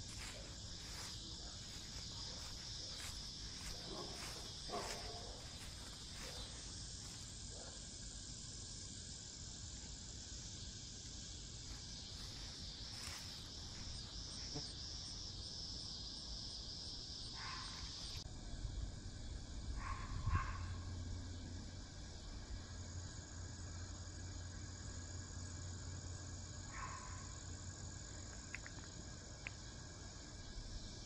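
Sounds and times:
high-pitched insect chorus: 0.0s - 31.0s.

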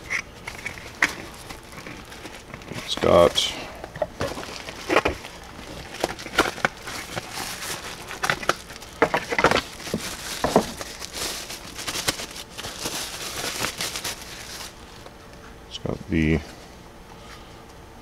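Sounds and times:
paper crinkling and rustling: 0.0s - 15.2s.

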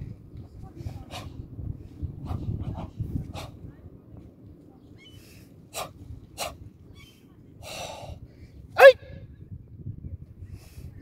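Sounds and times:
person kiai shout: 8.8s - 9.1s.

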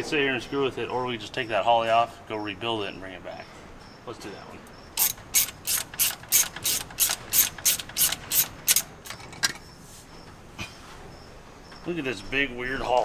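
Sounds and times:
ratchet wrench cranking: 5.0s - 9.2s.

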